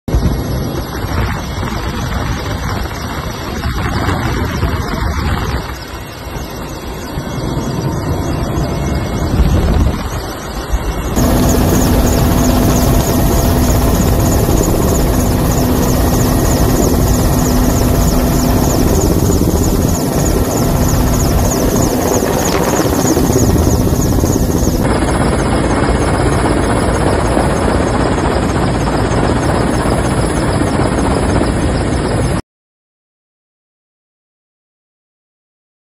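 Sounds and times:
helicopter engine and rotor drone: 0.1s - 32.4s.

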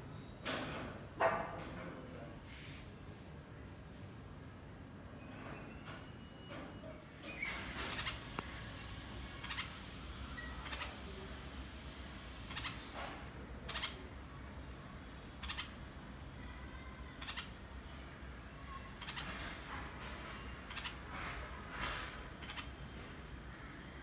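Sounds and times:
faint hiss: 7.0s - 13.2s
birds giving harsh calls: 7.1s - 14.1s, 15.3s - 16.0s, 19.0s - 19.6s.

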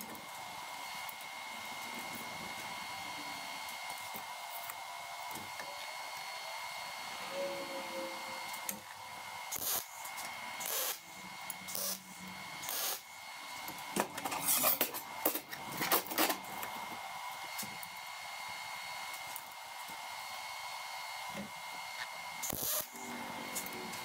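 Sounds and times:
metal parts clanking and scraping: 14.2s - 16.4s.

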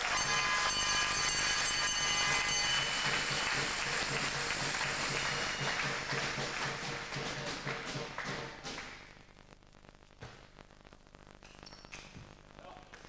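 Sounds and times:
crowd applauding and cheering: 0.0s - 9.2s
rhythmic low drumming: 1.3s - 9.1s.

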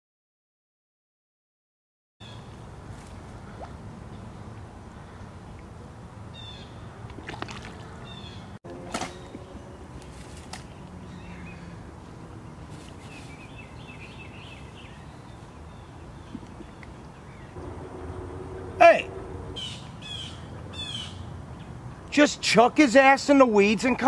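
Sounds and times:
birds chirping: 2.2s - 22.4s
low outdoor rumble: 2.4s - 22.2s
creek water sloshing and splashing: 2.8s - 5.8s, 6.9s - 11.0s.

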